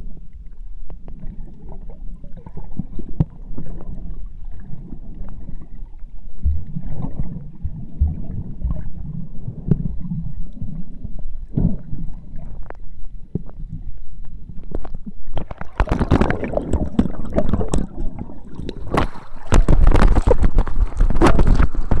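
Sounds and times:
muffled underwater sloshing: 0.0s - 22.0s
splashing: 15.4s - 22.0s.

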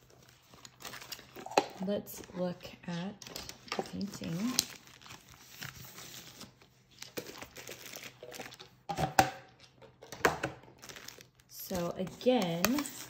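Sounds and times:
plastic wrap crinkling: 0.0s - 8.9s, 9.6s - 13.0s
sharp plastic crackles: 3.2s - 5.9s.

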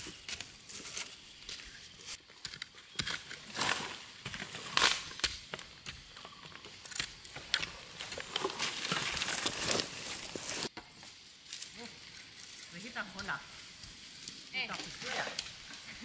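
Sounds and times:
crunching of dry leaves and twigs: 0.0s - 16.0s
hoe chopping into dry soil: 2.4s - 6.2s.

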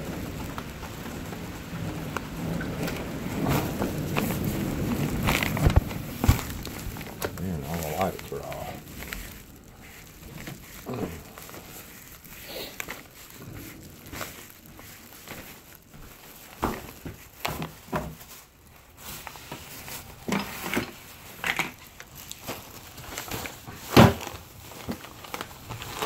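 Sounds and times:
shopping bags rustling: 0.0s - 26.0s
groceries set down thumping: 2.6s - 13.9s, 19.2s - 26.0s.

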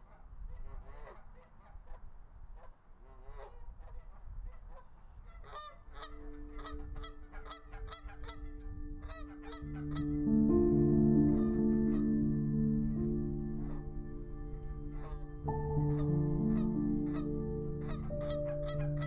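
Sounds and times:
geese honking: 5.2s - 19.0s.

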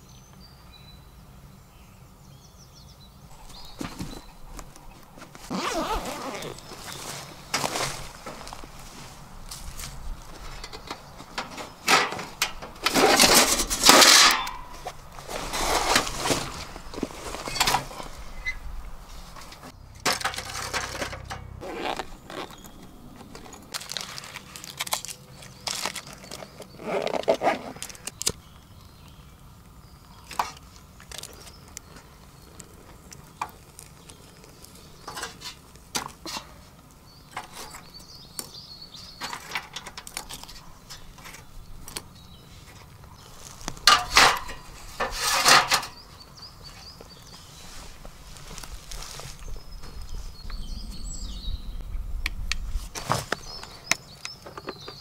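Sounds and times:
metal clinks and scrapes: 19.5s - 21.6s.

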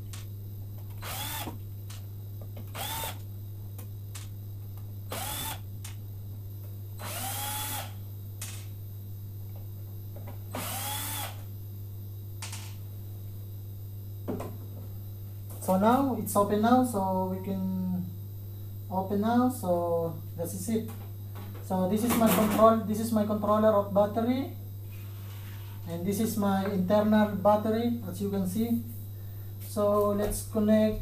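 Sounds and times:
steady low hum: 0.0s - 31.0s
cordless drill whirring: 1.0s - 1.6s, 2.7s - 3.3s, 5.1s - 5.6s, 7.0s - 8.0s, 10.5s - 11.5s.

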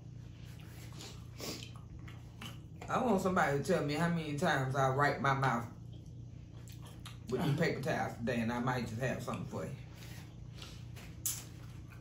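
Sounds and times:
low steady hum: 0.0s - 12.0s
wet eating smack: 0.6s - 2.9s, 6.0s - 7.4s.

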